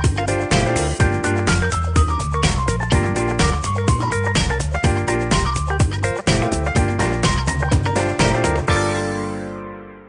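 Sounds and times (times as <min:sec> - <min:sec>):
drums keeping steady beat: 0:01.6 - 0:08.6
pitched instrumental notes: 0:02.9 - 0:04.3.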